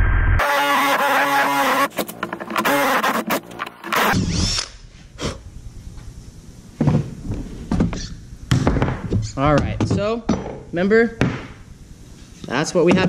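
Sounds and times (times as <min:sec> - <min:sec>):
drill motor whine: 0:00.4 - 0:04.7
knocks on a bench: 0:07.7 - 0:10.6, 0:11.2 - 0:11.6.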